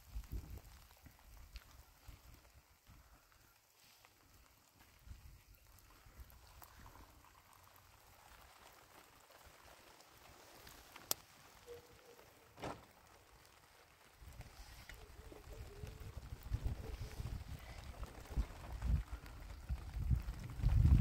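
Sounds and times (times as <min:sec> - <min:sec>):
tea pouring into a glass: 0:05.8 - 0:08.8.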